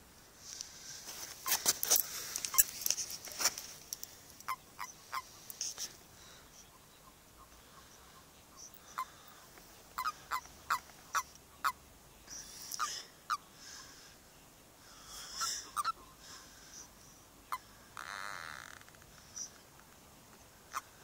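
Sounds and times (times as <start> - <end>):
toads croaking chirps: 2.4 - 3.0, 3.9 - 14.2, 14.9 - 19.6, 20.7 - 21.0.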